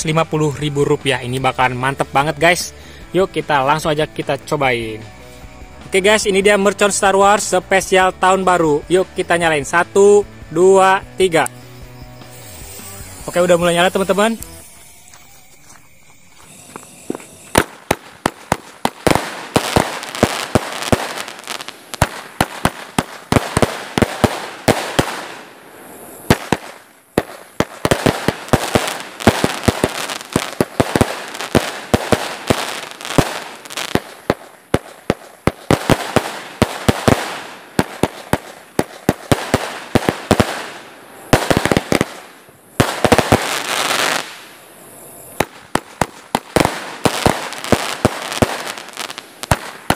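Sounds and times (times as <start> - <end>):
crackling firework stars: 5.2 - 49.9
firework bangs: 16.3 - 44.6, 45.2 - 49.9.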